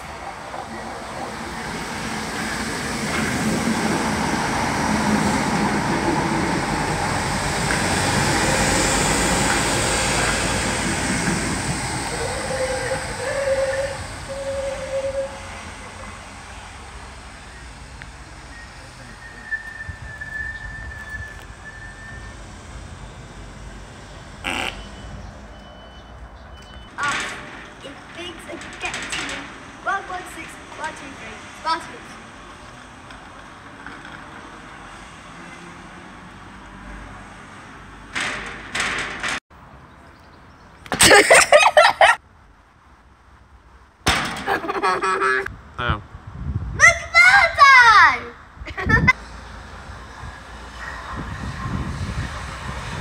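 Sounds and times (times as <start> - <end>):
electric train rumbling: 0.0 - 39.4, 44.4 - 53.0
high whistling tone: 18.5 - 22.4.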